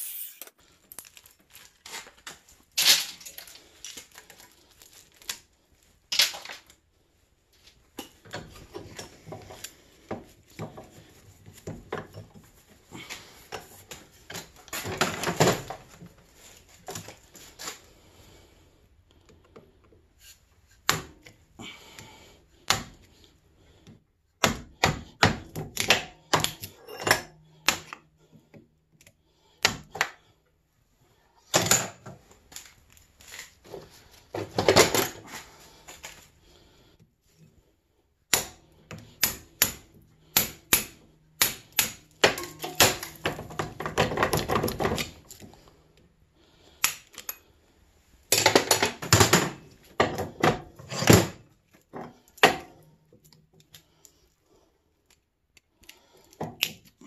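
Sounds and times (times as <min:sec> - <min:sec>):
metal-on-metal knocks and clinks: 0:42.2 - 0:44.5.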